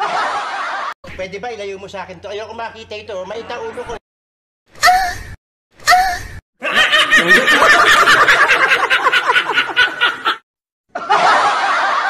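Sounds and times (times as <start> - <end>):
men laughing hard: 0.0 - 1.0, 6.6 - 12.0.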